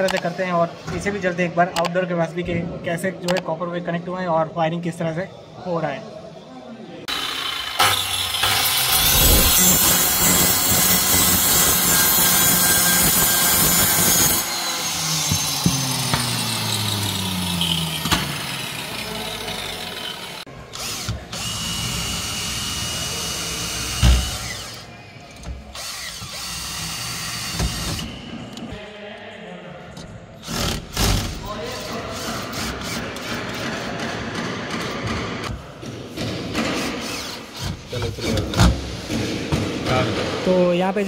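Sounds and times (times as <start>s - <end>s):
power drill running: 7.1s - 24.9s, 25.7s - 28.2s, 36.8s - 37.7s.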